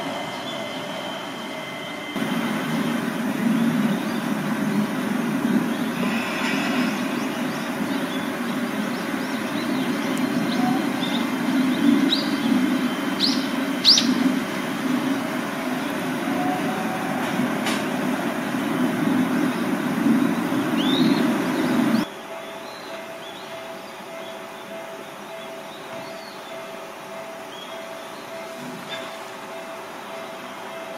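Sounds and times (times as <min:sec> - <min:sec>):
steady low rumble: 0:02.2 - 0:22.1.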